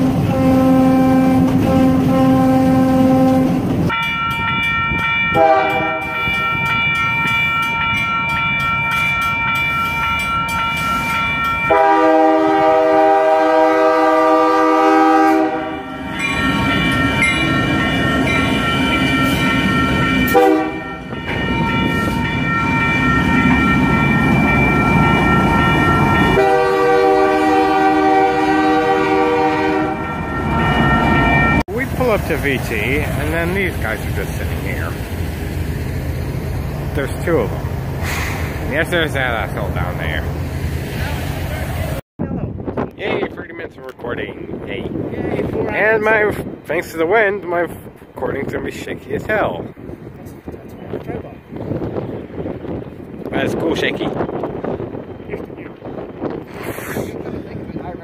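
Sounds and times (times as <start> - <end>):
locomotive horn chords: 0.0 - 3.7, 5.3 - 6.3, 11.7 - 16.1, 20.2 - 21.2, 26.1 - 30.4
rumble of passing train: 0.0 - 58.0.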